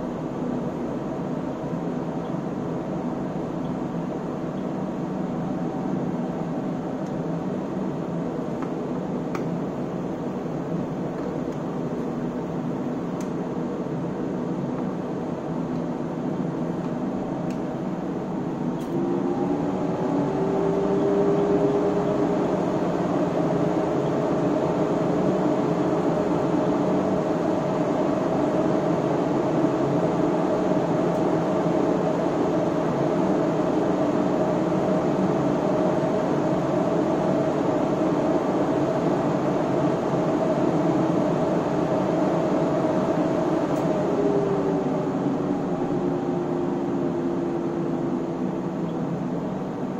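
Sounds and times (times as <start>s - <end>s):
whirring machine with hum: 0.0s - 49.9s.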